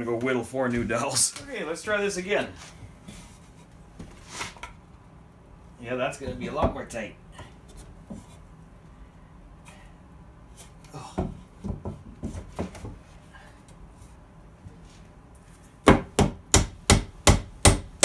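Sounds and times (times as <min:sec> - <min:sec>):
claw hammer striking wooden board: 0:15.8 - 0:18.0.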